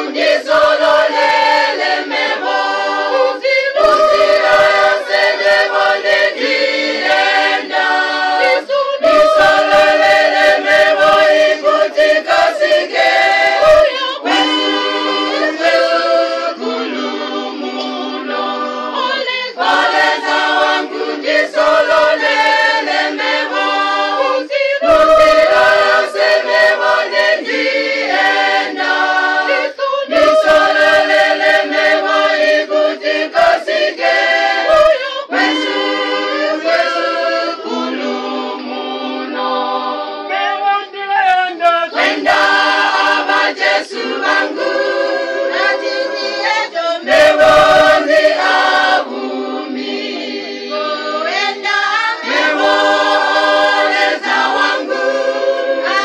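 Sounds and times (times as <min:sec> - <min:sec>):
choir singing a hymn: 0:00.0 - 0:56.0.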